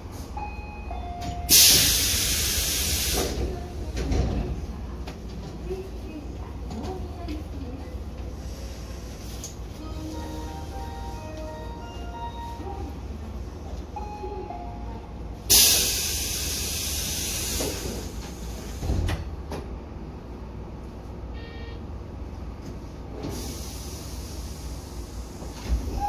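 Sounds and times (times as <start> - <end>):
train low rumble: 0.0 - 26.0
train air brake hiss: 1.5 - 3.4, 15.5 - 18.8, 23.3 - 25.4.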